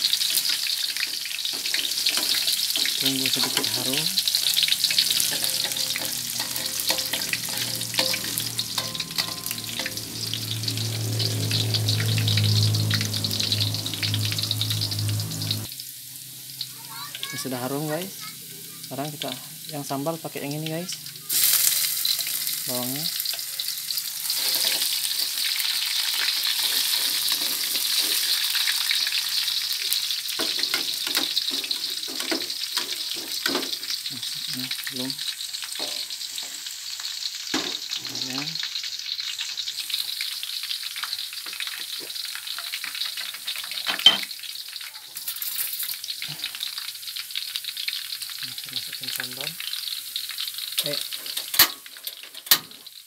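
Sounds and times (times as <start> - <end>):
shallots sizzling in hot oil: 0.0 - 53.0
spatula scraping a pan: 0.1 - 10.4, 24.3 - 25.5, 26.1 - 28.9.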